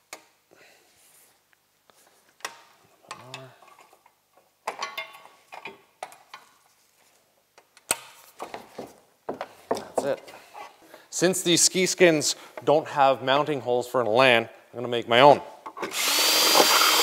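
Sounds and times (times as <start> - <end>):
handling knocks and rustles: 7.9 - 10.8.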